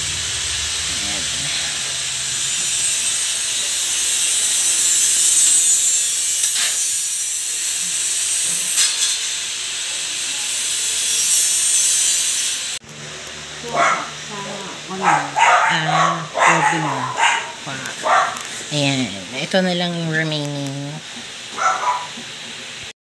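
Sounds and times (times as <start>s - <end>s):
steady hiss: 0.0s - 6.0s.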